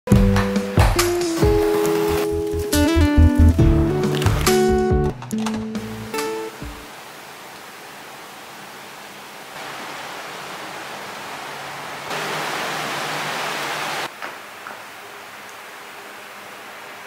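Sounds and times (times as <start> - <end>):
rain hissing: 0.6 - 17.0
wind: 6.2 - 17.0.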